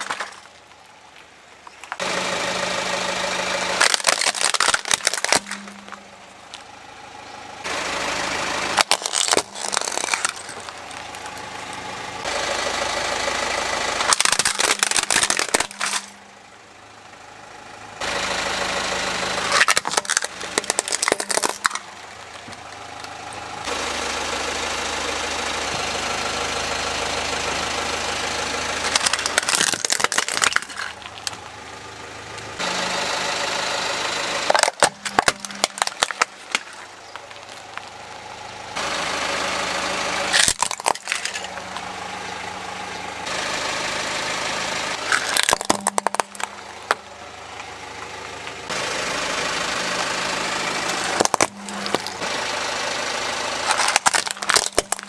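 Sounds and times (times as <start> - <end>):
plastic cracking and crunching: 0.0 - 0.8, 3.8 - 6.0, 8.8 - 11.8, 14.0 - 16.2, 19.5 - 23.2, 28.9 - 31.4, 34.5 - 37.9, 40.4 - 41.6, 45.1 - 47.0, 51.0 - 52.2, 53.6 - 55.0
car engine and tyre noise: 0.0 - 55.0.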